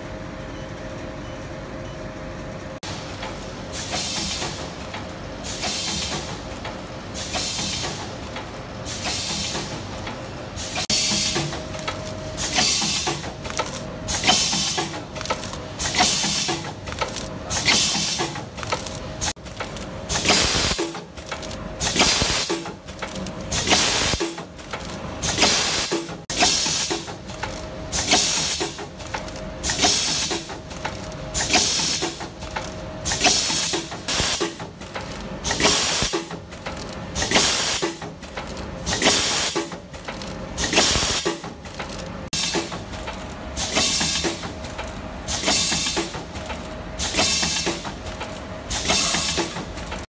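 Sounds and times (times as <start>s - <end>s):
machine mechanism clicks and knocks: 3.2s - 50.0s
pneumatic exhaust air hissing: 3.7s - 4.7s, 5.4s - 6.4s, 7.1s - 8.1s, 8.8s - 9.9s, 10.6s - 11.6s, 12.4s - 13.3s, 14.1s - 15.0s, 15.8s - 16.7s, 17.5s - 18.4s, 23.5s - 24.4s, 25.2s - 27.1s, 27.9s - 28.8s, 29.6s - 30.6s, 31.4s - 32.3s, 33.0s - 34.7s, 35.4s - 36.4s, 37.2s - 38.1s, 38.9s - 39.8s, 40.6s - 41.4s, 42.4s - 42.8s, 43.6s - 44.5s, 45.3s - 46.2s, 47.0s - 47.9s, 48.7s - 49.7s.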